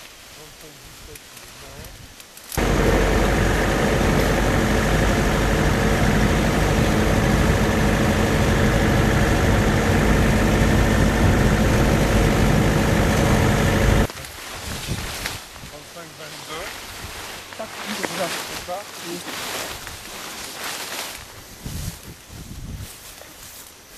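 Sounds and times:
wind and tyre hiss: 0:00.0 - 0:23.9
vehicle engine hum: 0:02.6 - 0:14.1.

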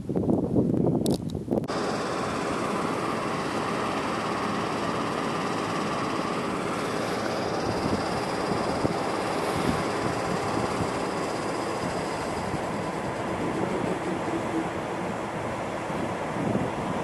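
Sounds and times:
locomotive machinery whirring: 0:01.7 - 0:17.0.

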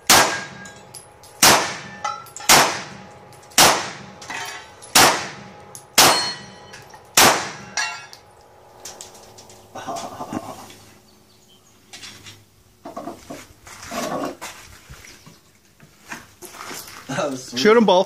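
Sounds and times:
pistol shots with echo: 0:00.0 - 0:08.1.

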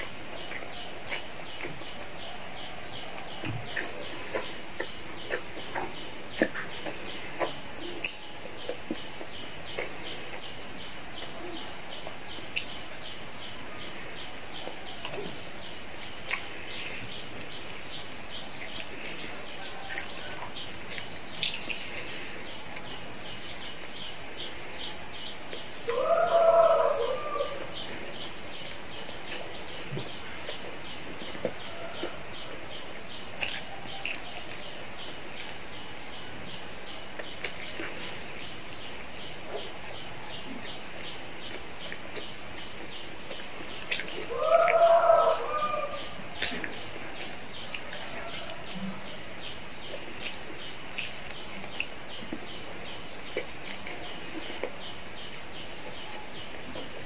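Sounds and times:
lower bird calls: 0:00.0 - 0:57.0.

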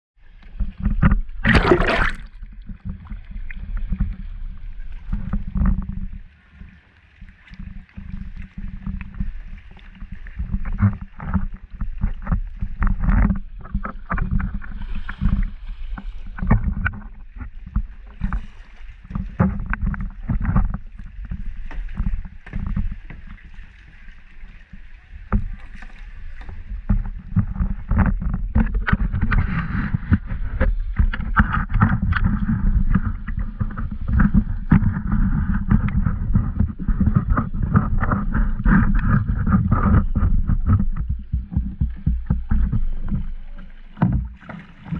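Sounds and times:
paddle strokes splashing: 0:00.2 - 0:44.9
low bumping and rumbling: 0:00.5 - 0:06.2, 0:26.5 - 0:44.9.

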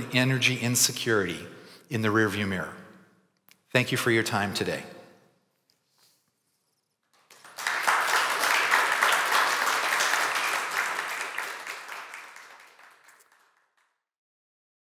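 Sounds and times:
audience applauding: 0:07.1 - 0:14.0.

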